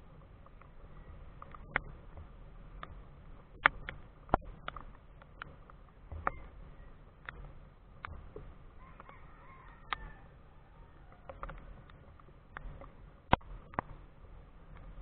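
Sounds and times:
raindrops tapping on camera housing: 0.0 - 10.2, 11.1 - 15.0.

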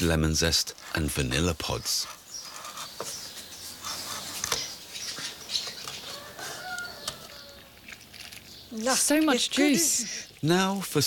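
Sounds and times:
knife scraping on wooden board: 2.0 - 6.6.

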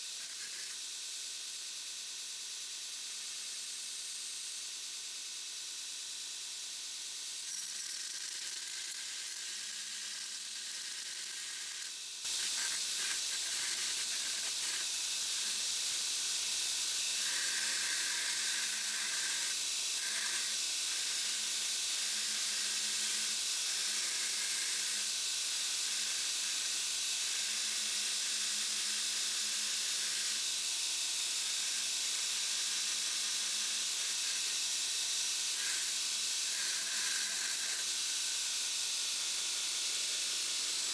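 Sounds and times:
belt grinder grinding steel: 7.4 - 16.2, 16.8 - 25.0, 31.3 - 40.9.

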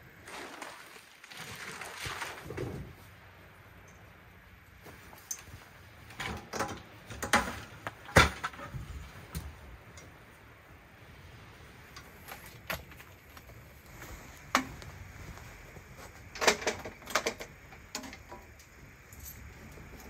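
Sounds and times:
metal table clanks and clicks: 6.1 - 8.7, 16.4 - 18.5.

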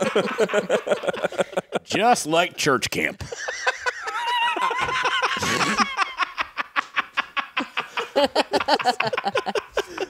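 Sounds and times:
men laughing: 0.0 - 2.2, 3.2 - 10.0.

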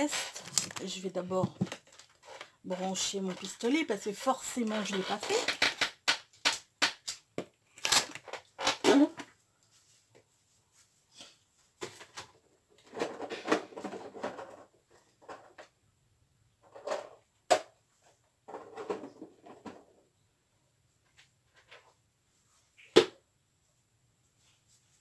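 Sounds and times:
rustling and rummaging: 0.0 - 15.8, 16.6 - 20.1, 20.9 - 22.9.

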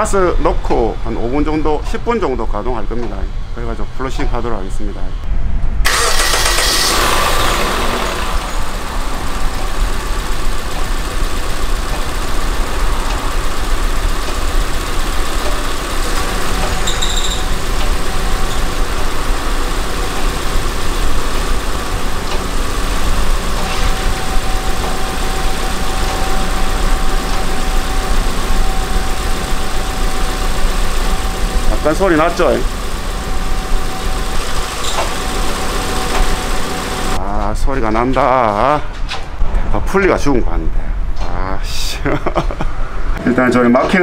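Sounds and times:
car engine starting and idling: 5.8 - 37.2.

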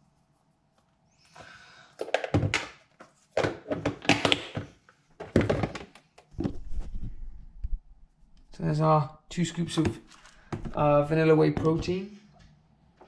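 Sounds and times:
knocks on plastic tubs: 3.4 - 6.6.

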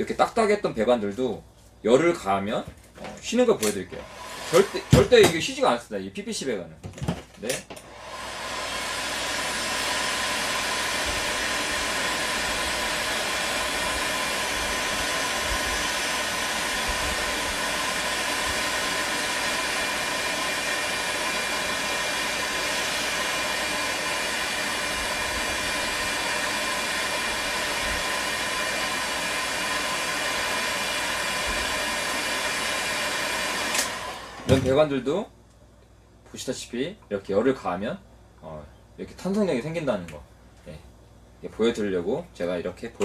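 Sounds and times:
heat gun blowing air: 3.6 - 5.4, 7.7 - 34.6.

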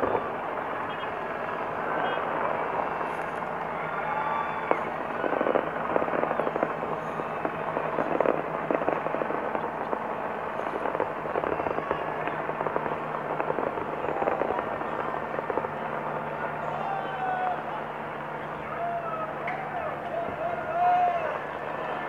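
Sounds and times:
fireworks crackling and banging: 0.0 - 22.0.

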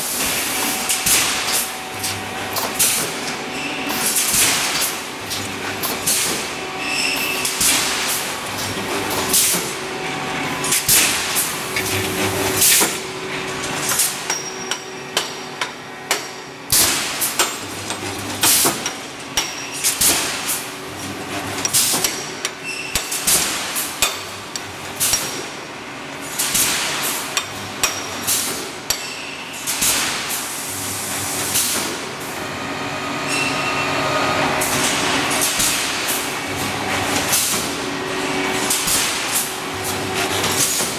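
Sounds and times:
steady machine noise: 0.0 - 23.2.

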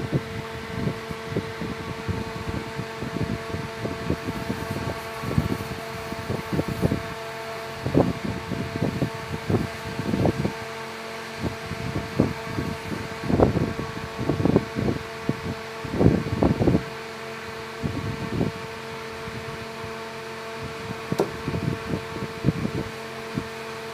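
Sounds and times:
mechanical hum: 0.0 - 23.9
dull thumps and scuffs: 21.1 - 21.6.

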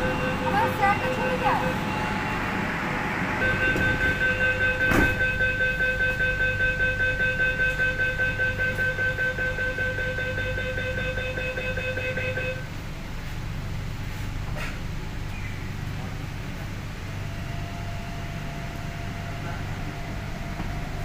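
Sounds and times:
train door warning buzzer: 0.0 - 12.7
train carriage rumble: 0.0 - 21.0.

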